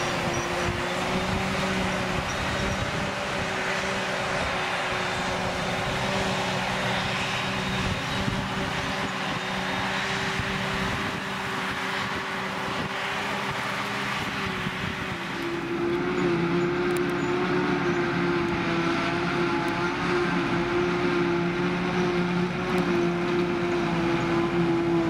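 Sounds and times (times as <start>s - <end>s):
forage harvester chopping grass: 0.0s - 25.0s
tractor engine running: 0.0s - 25.0s.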